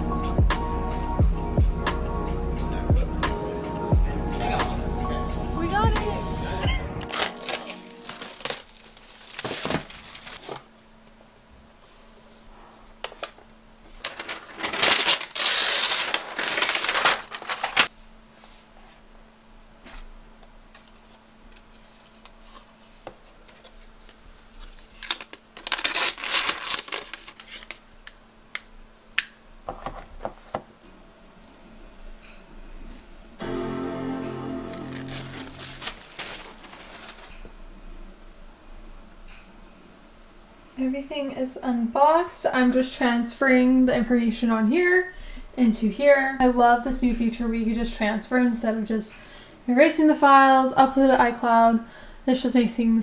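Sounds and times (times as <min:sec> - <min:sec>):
packaging crinkling and tearing: 0:07.0 - 0:10.7, 0:13.1 - 0:17.9, 0:24.5 - 0:28.2, 0:34.7 - 0:37.4.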